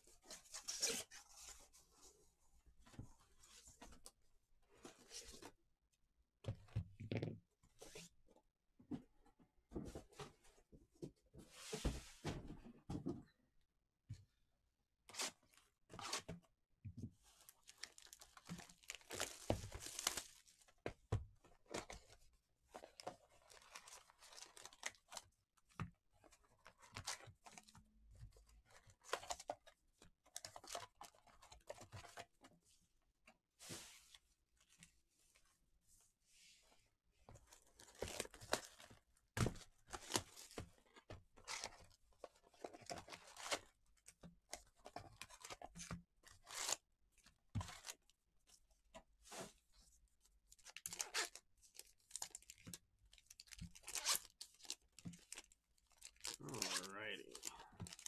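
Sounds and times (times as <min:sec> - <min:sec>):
packaging tearing and crinkling: 0:17.8 - 0:20.4.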